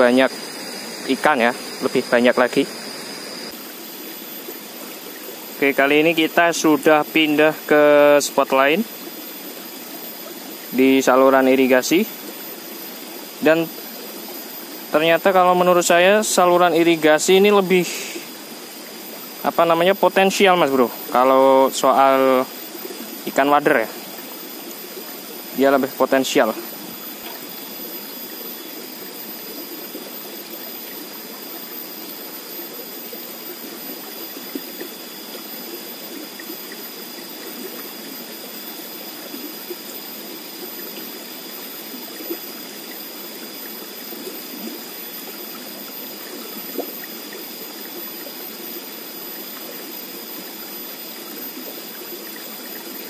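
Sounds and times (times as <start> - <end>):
thin steady high tone: 0.0 - 53.0
water rushing along channel: 0.0 - 53.0.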